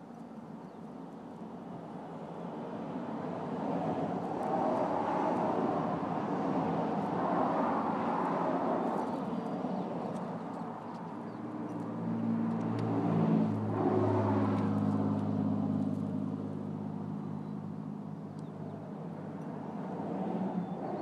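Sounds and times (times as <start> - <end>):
passing vehicle engine drone: 11.2 - 21.0.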